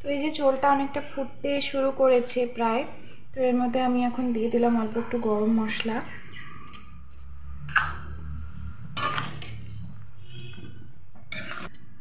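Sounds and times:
utensils scraping a pan: 9.0 - 11.8.

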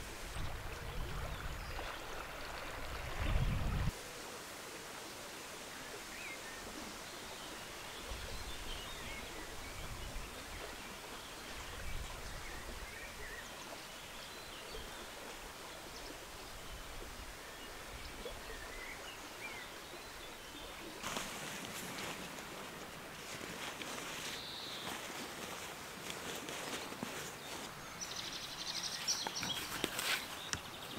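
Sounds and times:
flowing water: 0.0 - 30.9
leaves rustling: 20.8 - 30.9.

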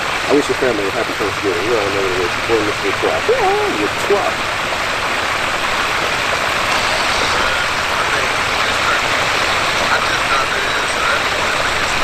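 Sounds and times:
hot oil bubbling and sizzling: 0.0 - 12.0
gas burner rushing: 6.6 - 8.1.

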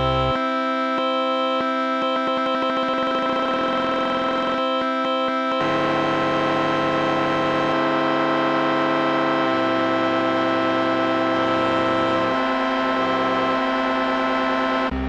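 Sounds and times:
sustained synthesizer chord: 0.0 - 15.0.

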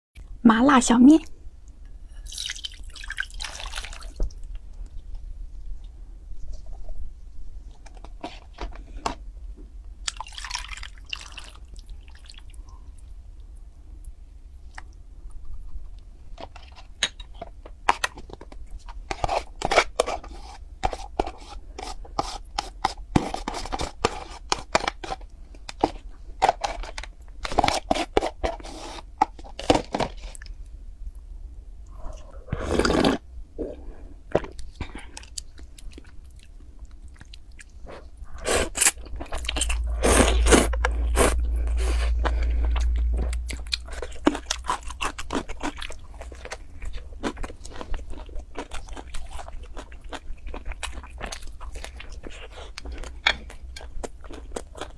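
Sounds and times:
crunchy chewing: 34.4 - 54.9.

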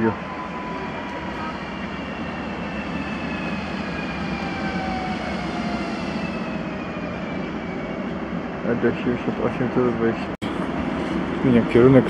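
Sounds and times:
train traction motors whining: 0.0 - 12.0
wheels rumbling on rails: 0.0 - 12.0.

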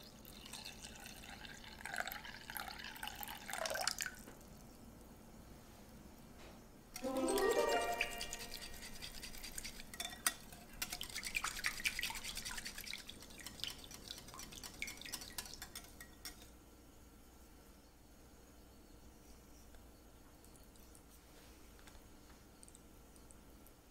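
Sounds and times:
liquid pouring into bowl: 0.2 - 4.3, 7.0 - 16.5
whisk clicking against glass bowl: 8.2 - 16.5.

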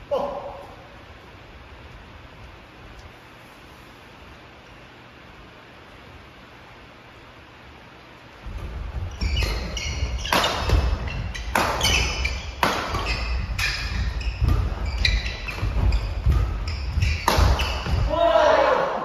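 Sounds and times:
feet thudding on wooden floor: 8.4 - 18.1
sneakers squeaking: 8.4 - 18.7
rackets hitting shuttlecock: 8.5 - 18.2.

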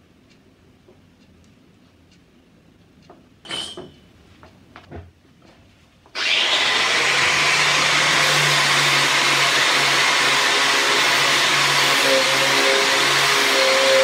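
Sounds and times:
angle grinder sanding: 6.2 - 14.0.

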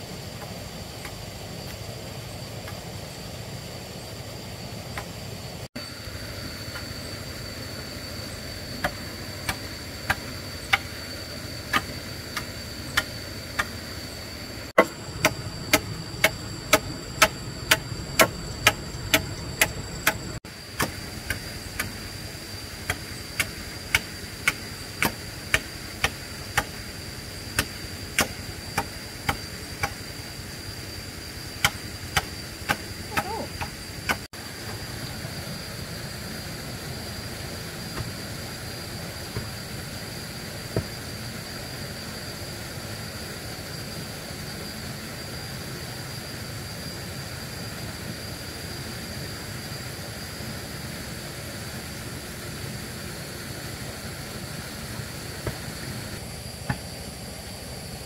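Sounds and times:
high-pitched whine: 0.0 - 58.0
rhythmic hammering: 14.7 - 22.0, 22.8 - 26.8, 31.6 - 34.3.

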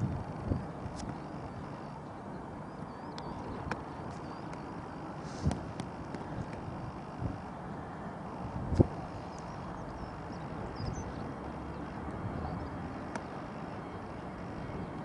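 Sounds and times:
wind on microphone: 0.0 - 2.0, 2.8 - 15.0
jet taxiing rumble: 0.0 - 15.0
faint bird chirps: 1.2 - 5.4, 9.1 - 13.9.

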